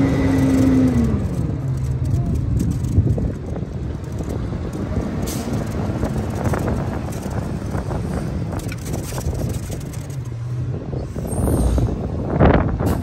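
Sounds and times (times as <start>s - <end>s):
garbage truck diesel engine: 0.0s - 13.0s.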